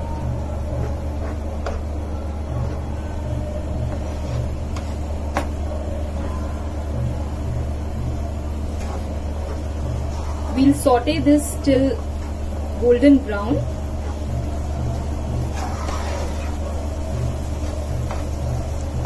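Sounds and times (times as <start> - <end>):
onions frying in oil: 0.0 - 19.0
steady low hum: 0.0 - 19.0.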